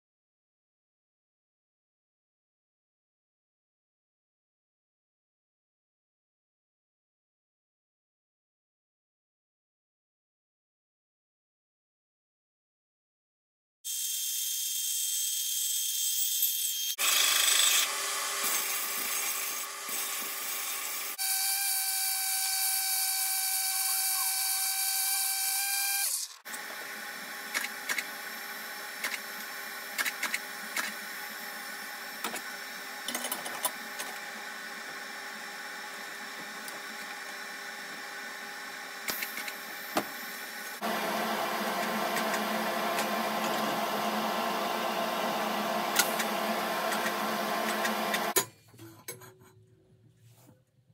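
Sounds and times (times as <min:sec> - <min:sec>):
workshop machine noise: 0:16.6 - 0:49.6
steady machine whine: 0:39.8 - 0:48.4.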